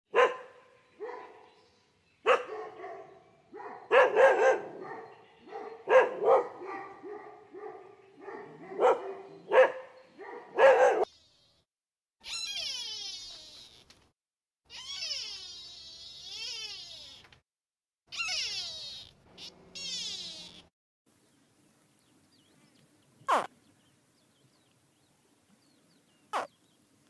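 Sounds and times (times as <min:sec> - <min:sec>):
dog barking: 0:00.1 - 0:01.5, 0:02.2 - 0:11.1.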